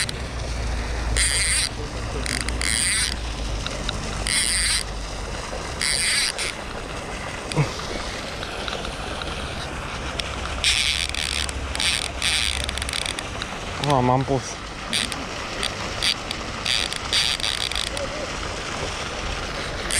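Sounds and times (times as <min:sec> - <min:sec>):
fishing reel whirring: 0:00.0 - 0:03.4, 0:04.2 - 0:05.0, 0:05.6 - 0:06.8, 0:09.6 - 0:13.5, 0:14.6 - 0:18.2, 0:19.4 - 0:19.9.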